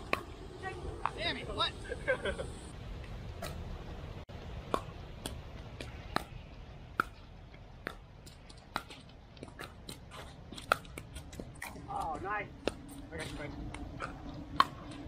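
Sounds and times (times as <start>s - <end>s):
paddles hitting pickleball: 4.5s - 15.0s.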